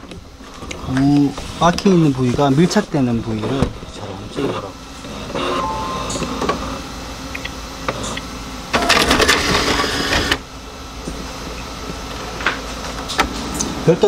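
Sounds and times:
inkjet printer humming: 1.4 - 11.5
printer rapid clicking and rattling: 8.8 - 10.4.

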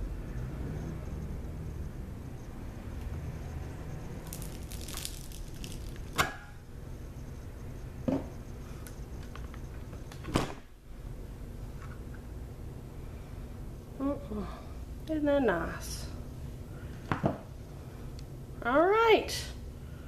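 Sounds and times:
wires crackling through soap: 4.2 - 6.6.

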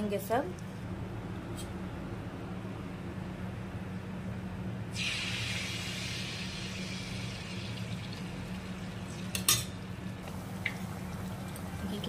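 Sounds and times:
batter sizzling in hot oil: 4.9 - 12.0.

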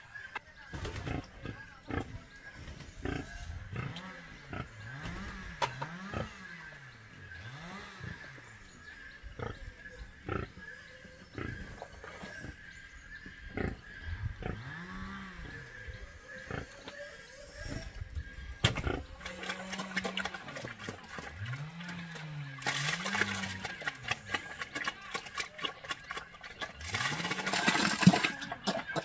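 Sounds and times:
pigs grunting: 1.0 - 29.0
wet feed pouring into trough: 19.2 - 29.0.

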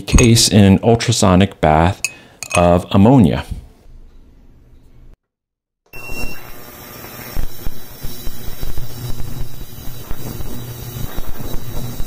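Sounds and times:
hiss with fine crackle: 6.1 - 12.0.

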